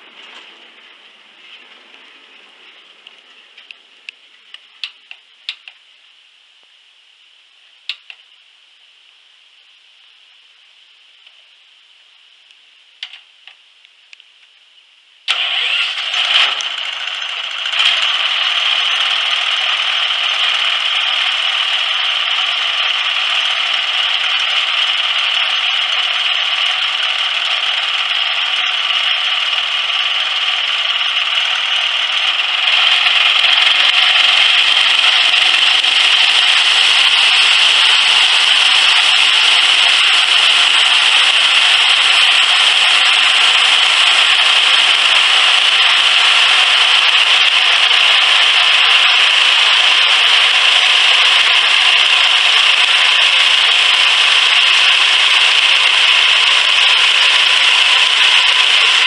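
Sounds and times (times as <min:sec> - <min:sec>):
small gas engine running: 0:15.3 - 0:59.0.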